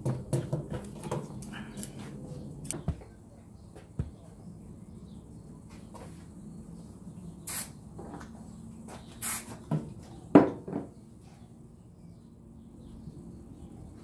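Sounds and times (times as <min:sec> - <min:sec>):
aerosol can spraying: 0:07.5 - 0:07.8, 0:09.2 - 0:09.6.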